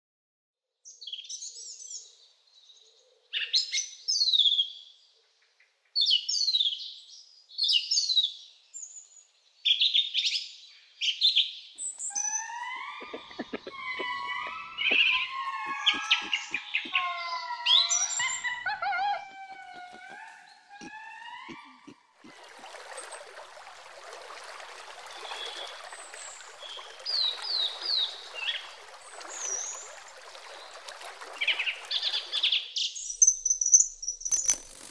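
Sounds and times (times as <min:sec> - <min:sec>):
birds chirping: 0:11.8 - 0:34.9
lemurs calling: 0:12.1 - 0:22.1
stream rushing: 0:22.2 - 0:32.6.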